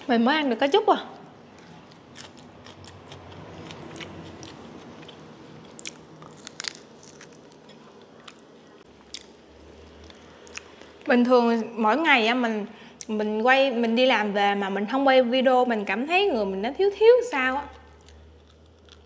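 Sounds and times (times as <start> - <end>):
person chewing food: 1.5 - 11.1, 17.9 - 19.0.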